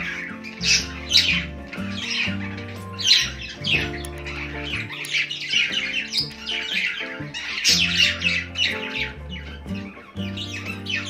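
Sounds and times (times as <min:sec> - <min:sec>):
background music with held notes: 0:00.0 - 0:11.0
budgerigars chirping and squawking: 0:00.0 - 0:11.0.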